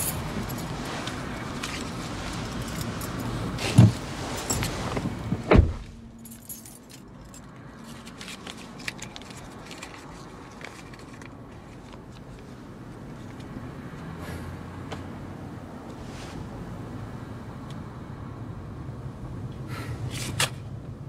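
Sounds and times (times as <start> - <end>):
keys jingling: 0.0 - 4.9, 6.2 - 11.2
car door shutting: 3.6 - 6.0.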